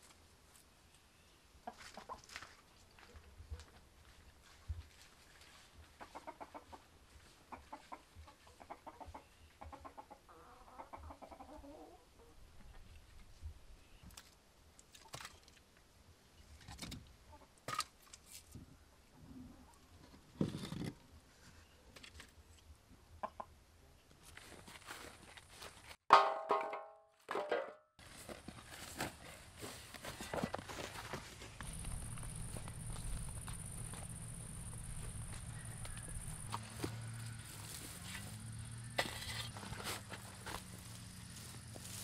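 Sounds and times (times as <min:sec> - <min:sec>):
chickens clucking: 0:05.9 - 0:12.9, 0:23.1 - 0:23.6, 0:31.6 - 0:38.8.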